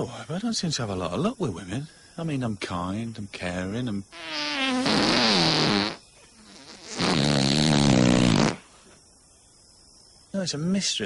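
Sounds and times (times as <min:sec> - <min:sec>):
long fart noises: 0:04.1 - 0:08.7.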